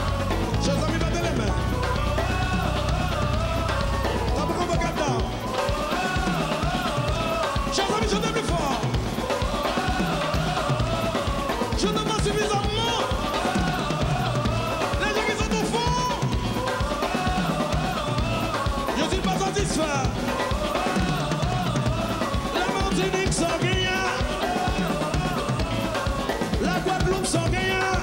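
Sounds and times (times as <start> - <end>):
bass line: 0.0 - 7.4
drum kit groove: 0.0 - 28.0
live band playing kompa music: 0.0 - 28.0.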